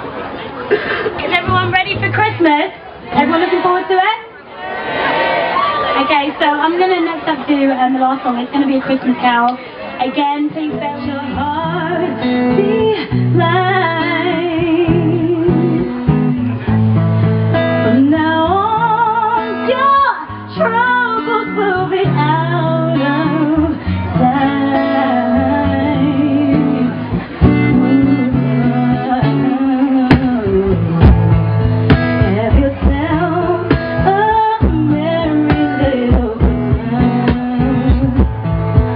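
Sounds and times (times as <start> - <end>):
guitar: 0.0 - 38.9
woman singing with vibrato: 10.0 - 16.0, 17.8 - 31.1, 32.2 - 38.4.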